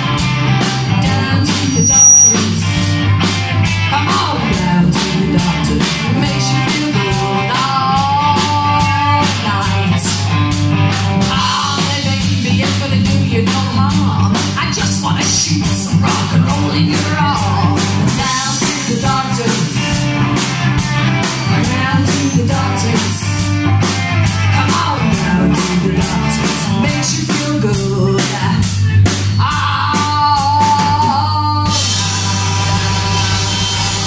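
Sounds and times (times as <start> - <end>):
drum kit beat: 0.0 - 34.0
electric guitar: 0.0 - 34.0
woman singing: 0.9 - 2.9, 3.9 - 10.3, 11.3 - 20.1, 21.5 - 23.5, 24.5 - 28.8, 29.4 - 32.4.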